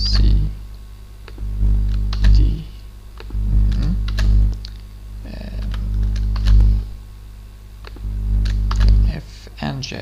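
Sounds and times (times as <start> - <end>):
keyboard typing: 1.3 - 2.4, 3.2 - 4.4, 5.6 - 6.7, 7.8 - 9.0.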